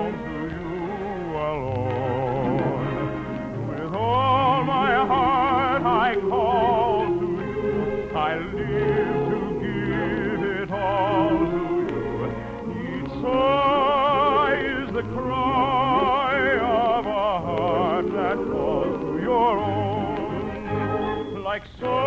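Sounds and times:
operetta singing with vibrato: 0.0 - 22.0
orchestra: 0.0 - 22.0.

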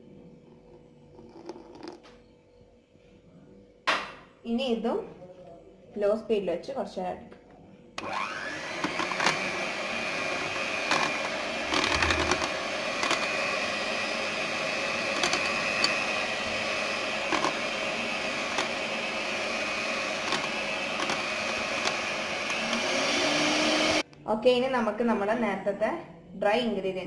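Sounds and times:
sharp mixer clicks: 8.0 - 9.4, 15.1 - 16.1
electric hand mixer whisking: 8.0 - 24.0.

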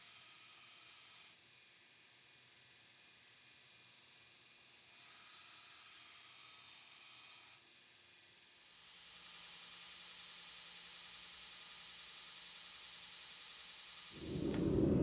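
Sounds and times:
faint low hum: 14.2 - 15.0.

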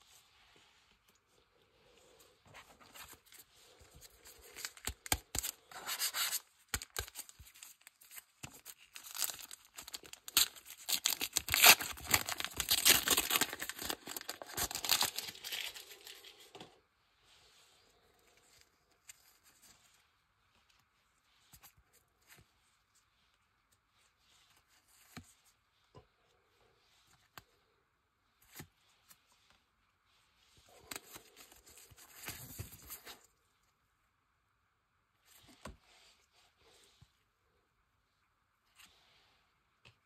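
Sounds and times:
foil pack tearing and crinkling: 8.6 - 16.1.

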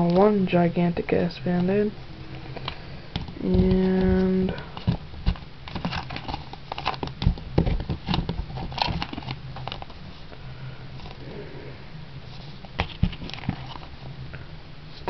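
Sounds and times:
paper packets crinkling: 3.6 - 10.0.

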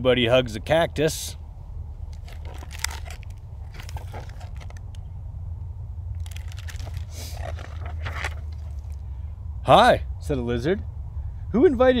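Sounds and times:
steady low rumble: 0.0 - 12.0
book pages rustling: 2.1 - 5.0, 6.2 - 9.0.

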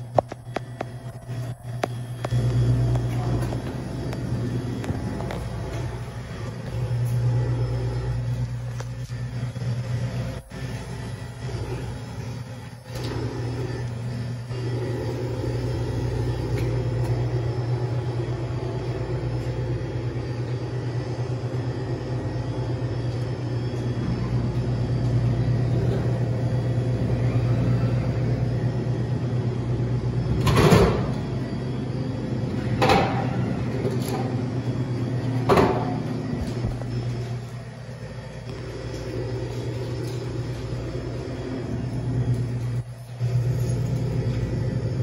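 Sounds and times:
vending machine hum: 0.0 - 45.0.

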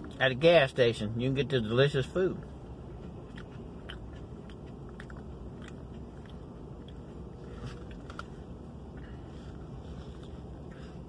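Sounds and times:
low background hum: 0.0 - 11.0
man chewing: 2.4 - 11.0.

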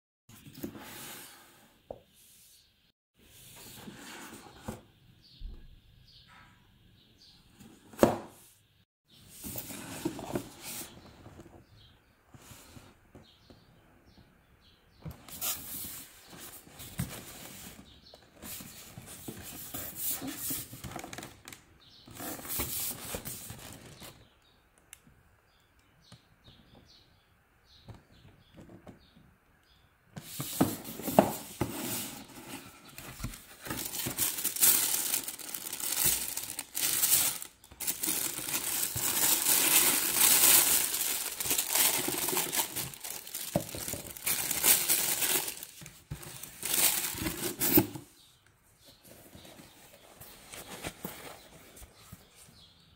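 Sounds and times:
paper rustling: 30.3 - 47.9
cardboard box being opened: 30.3 - 48.0
tissue paper crinkling: 33.2 - 47.8.

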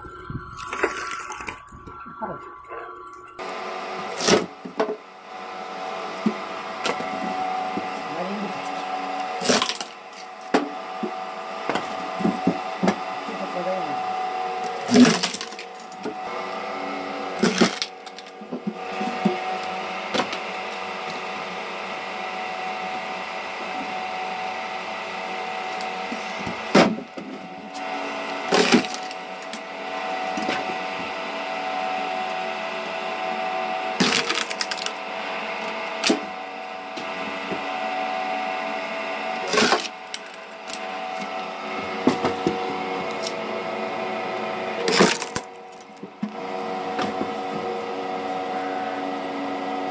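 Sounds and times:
motor hum: 0.0 - 49.9
wood splitting cracks: 0.5 - 2.0, 9.4 - 10.7, 14.7 - 16.2, 17.4 - 20.5, 28.5 - 29.6, 34.0 - 35.0, 35.6 - 36.4, 39.4 - 41.4, 44.9 - 46.4.

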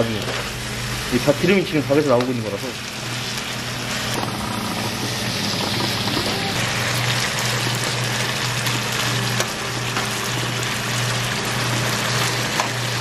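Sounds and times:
chicken sizzling in a frying pan: 0.0 - 13.0
low hum: 3.3 - 7.2.

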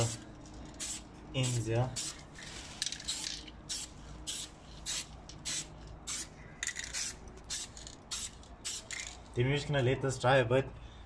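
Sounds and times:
spray can hissing: 0.7 - 9.2.

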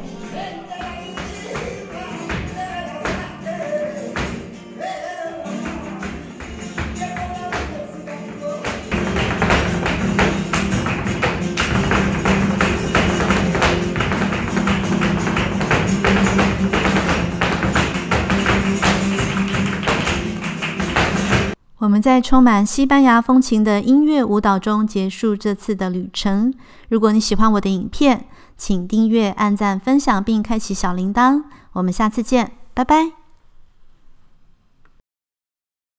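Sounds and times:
person singing: 0.0 - 10.0
flamenco guitars strumming: 0.0 - 21.6
hand clapping: 5.6 - 21.6
sharp percussive strikes: 8.7 - 21.6.

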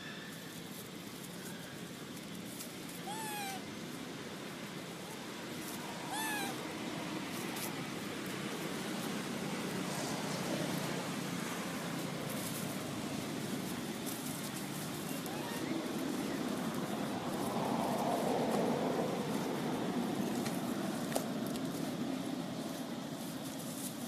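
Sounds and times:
steady background hiss: 0.0 - 24.0
baby monkey coo calls: 3.0 - 3.7, 5.8 - 6.7.

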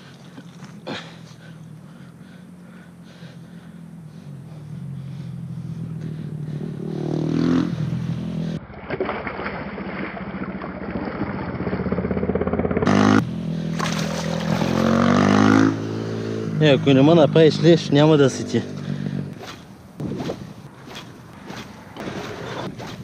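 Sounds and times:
motor engine droning: 0.0 - 9.1, 10.0 - 23.0
water splashing: 8.6 - 12.0, 13.7 - 15.0, 19.4 - 23.0.

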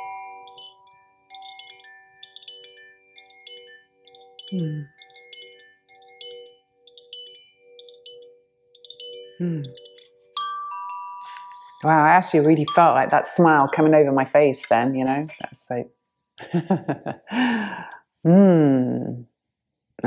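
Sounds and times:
bamboo chime tinkling: 0.0 - 15.8.

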